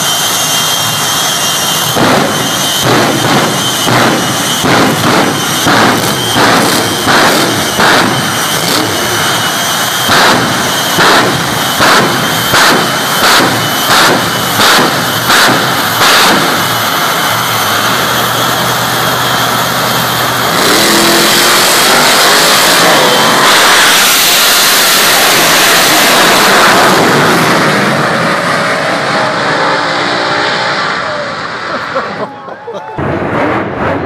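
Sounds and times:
jet engines roaring: 0:00.0 - 0:34.0.

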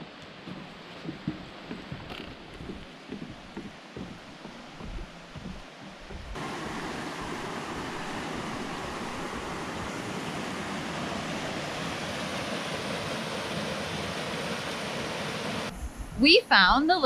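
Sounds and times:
river rushing over rocks: 0:02.9 - 0:15.7.

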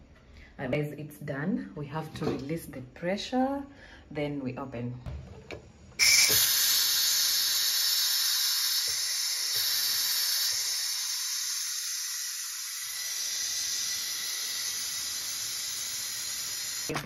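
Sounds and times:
steam hissing from valve: 0:06.0 - 0:16.9.

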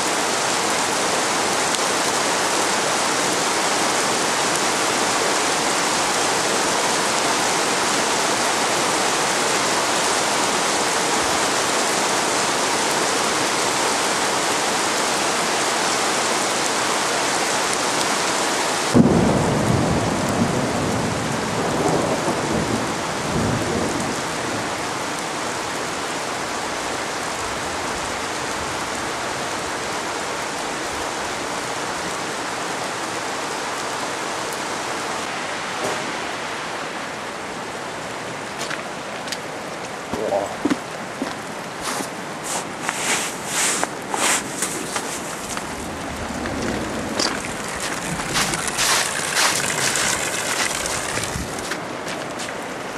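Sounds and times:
heavy rain: 0:00.0 - 0:52.9
thunderclap rumbling: 0:18.9 - 0:24.7, 0:44.5 - 0:51.7.

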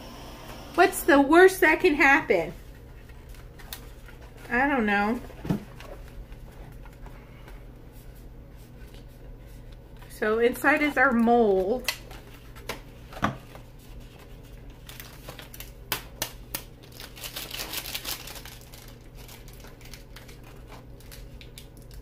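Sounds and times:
snack packets crinkling: 0:14.2 - 0:22.0.

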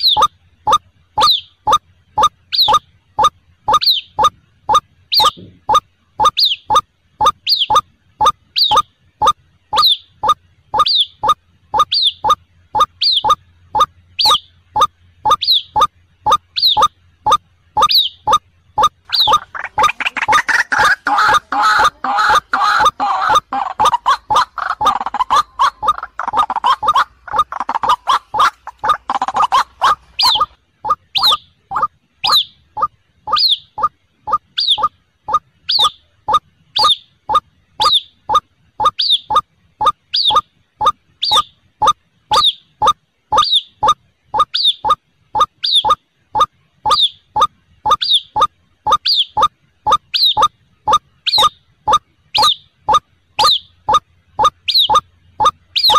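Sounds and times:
waterhens calling: 0:18.8 - 0:32.4.

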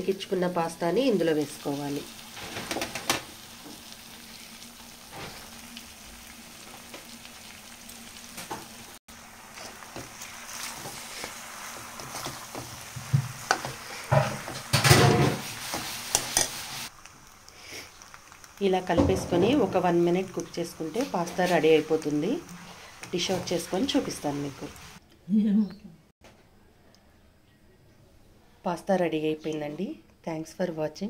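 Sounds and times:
food sizzling in a pan: 0:00.0 - 0:25.0
spoon stirring and scraping pan: 0:09.6 - 0:16.9, 0:19.0 - 0:24.9.

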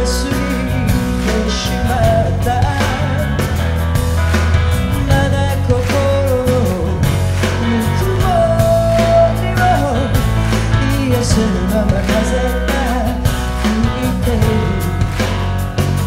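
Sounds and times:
band playing rock blues: 0:00.0 - 0:16.0
bass line: 0:00.0 - 0:16.0
sliding melody line: 0:00.0 - 0:16.0.

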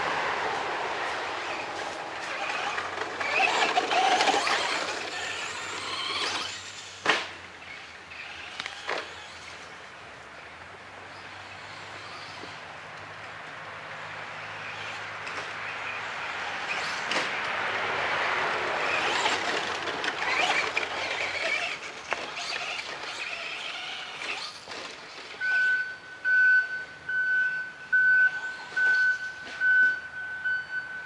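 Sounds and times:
rc truck motor and tyres on dirt: 0:00.0 - 0:26.2, 0:27.4 - 0:31.0
high electronic beep: 0:25.4 - 0:31.0.

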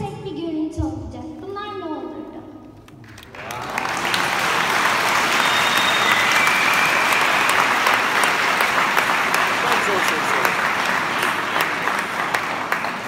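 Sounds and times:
audience applauding: 0:03.0 - 0:13.0.

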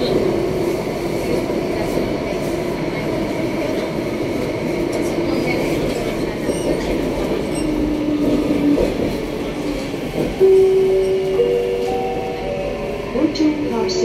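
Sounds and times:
metro train running rumble: 0:00.0 - 0:14.0.

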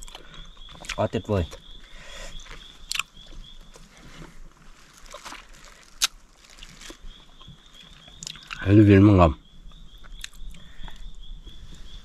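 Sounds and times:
man chewing: 0:00.0 - 0:01.0, 0:02.3 - 0:04.3.

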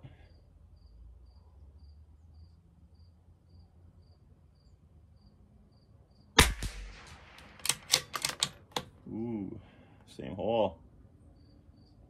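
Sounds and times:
cricket chirping: 0:00.0 - 0:06.4, 0:10.8 - 0:12.0
rifle shot: 0:06.4 - 0:08.4.

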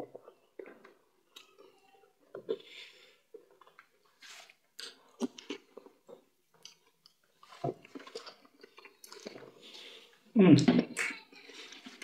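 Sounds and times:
chewing and mouth smacks: 0:03.3 - 0:09.8.

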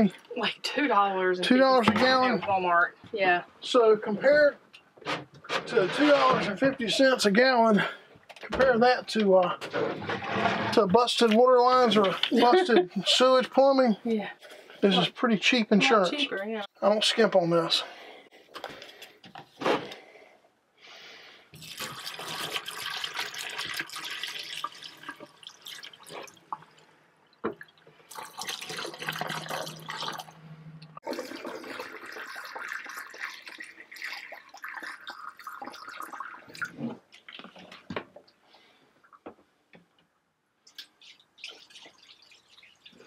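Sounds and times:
liquid splashing and gurgling down drain: 0:21.6 - 0:26.8, 0:27.6 - 0:30.4, 0:31.0 - 0:37.6.

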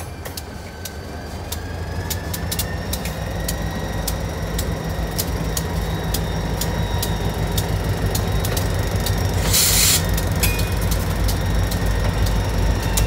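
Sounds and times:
diesel locomotives rumbling: 0:00.0 - 0:13.0
sharp wheel clicks: 0:00.2 - 0:13.0
short hiss: 0:09.4 - 0:10.1.

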